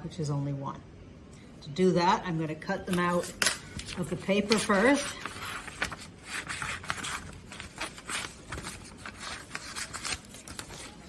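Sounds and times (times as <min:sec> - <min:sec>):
paper rustling and scraping: 0:03.3 - 0:11.0.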